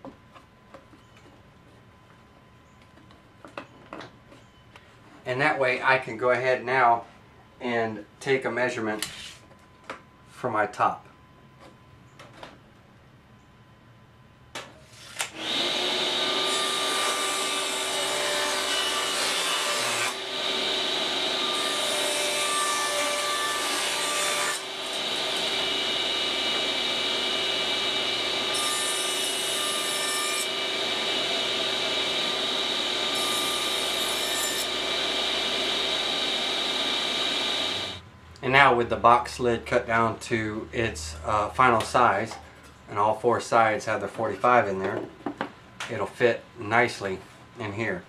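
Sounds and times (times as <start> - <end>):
saw blade cutting wood: 14.9 - 38.0
table saw whine: 14.9 - 38.0.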